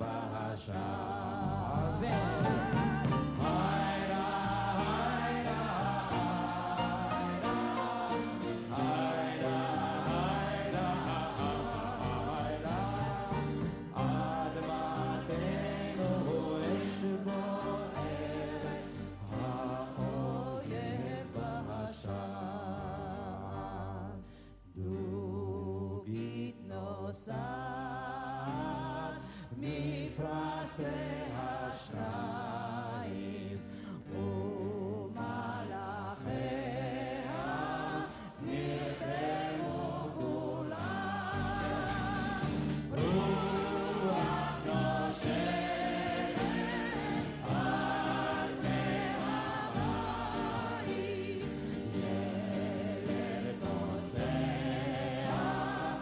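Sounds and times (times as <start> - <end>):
crowd singing in unison: 0.0 - 24.2, 25.1 - 56.0
instrumental accompaniment: 2.0 - 21.2, 40.8 - 56.0.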